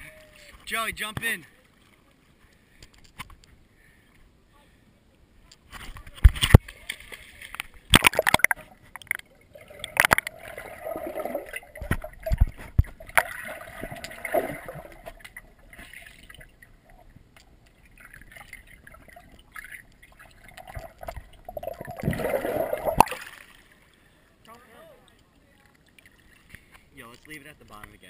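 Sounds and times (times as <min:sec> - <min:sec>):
underwater gurgling and bubbling: 0:07.9 - 0:23.2.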